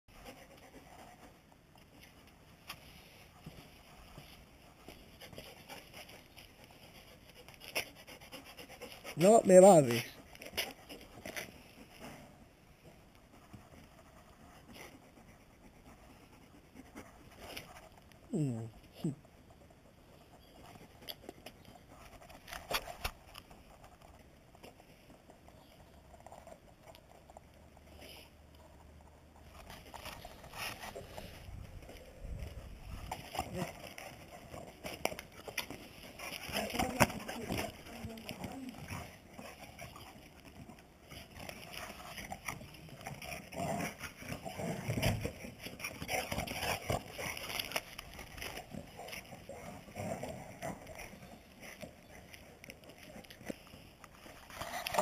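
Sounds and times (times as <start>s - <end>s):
dogs play-fighting noises: 0.2s - 9.2s, 10.2s - 55.0s
paws scuffling on concrete: 0.2s - 18.2s, 19.2s - 55.0s
dog mouth clicks and fur rustling: 29.4s - 55.0s.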